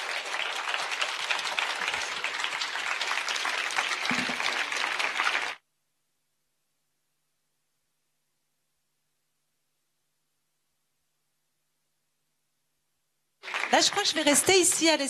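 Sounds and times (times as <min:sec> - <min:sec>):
audience applauding: 0:00.0 - 0:05.6, 0:13.4 - 0:15.0.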